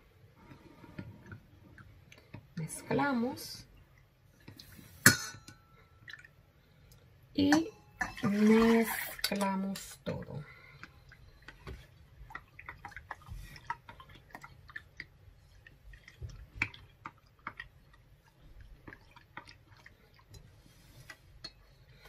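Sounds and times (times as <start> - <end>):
small liquid splashes: 5.8 - 21.2.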